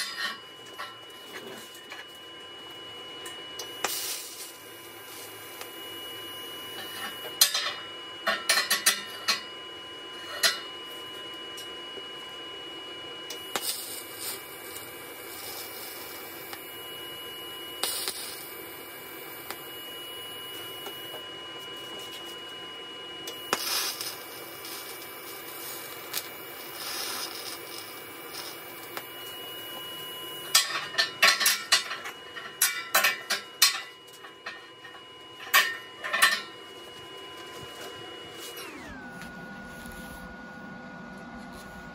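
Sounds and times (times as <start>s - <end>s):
welding arc hissing: 3.8s - 5.7s, 13.4s - 16.8s, 17.7s - 21.1s, 23.3s - 31.9s.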